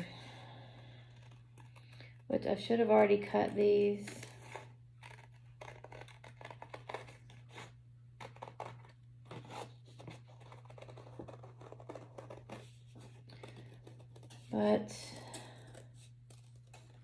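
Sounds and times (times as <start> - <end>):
low steady hum: 0.0 - 17.0
scissors snipping paper: 1.0 - 14.7, 15.3 - 17.0
paper rustling: 4.0 - 14.6.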